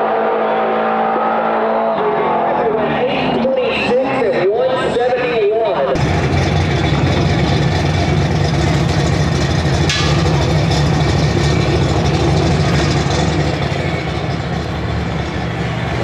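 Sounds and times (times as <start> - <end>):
engine idling: 6.0 - 16.0.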